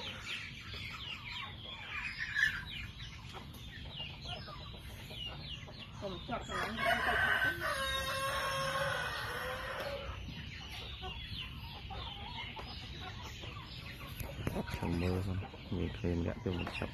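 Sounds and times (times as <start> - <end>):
chickens clucking: 0.0 - 16.9
rooster crowing: 6.6 - 10.0.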